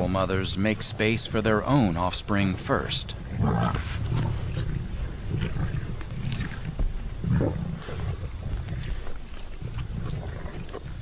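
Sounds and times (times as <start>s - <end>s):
lions growling: 2.6s - 11.0s.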